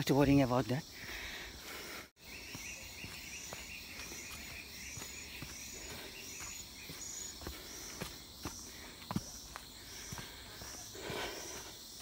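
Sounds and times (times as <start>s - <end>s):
insects pulsing chorus: 0.0s - 12.0s
footsteps on leaf litter: 2.4s - 11.6s.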